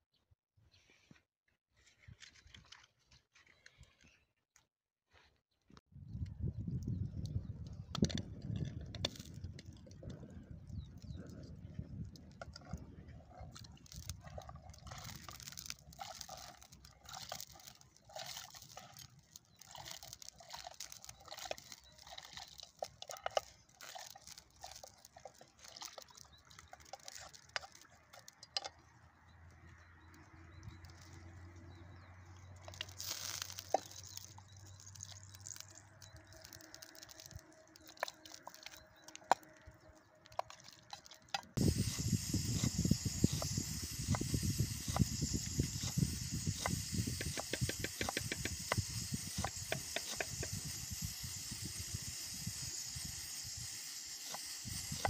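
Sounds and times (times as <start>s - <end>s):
loud hissing: 41.6s - 55.0s.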